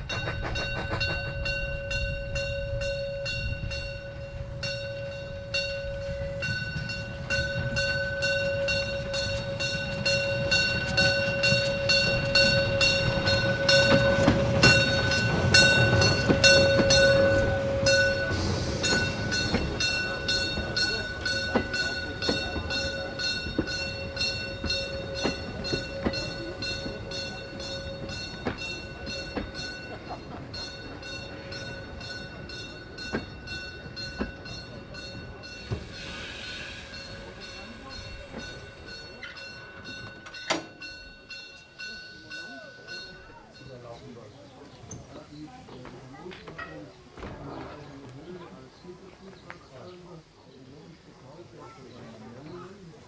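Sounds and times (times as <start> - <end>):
train wheels clicking over rail joints: 0.0 - 4.3, 5.8 - 41.8
steam train rumble: 0.0 - 53.0.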